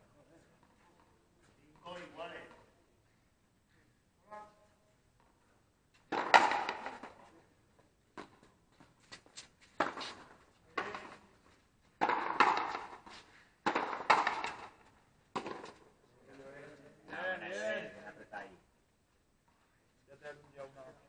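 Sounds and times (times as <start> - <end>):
ball smacking off wall: 6.1 - 7.1, 12.0 - 13.0, 13.6 - 14.7
racket striking rubber ball: 6.1 - 7.2, 12.0 - 13.0, 13.6 - 14.8.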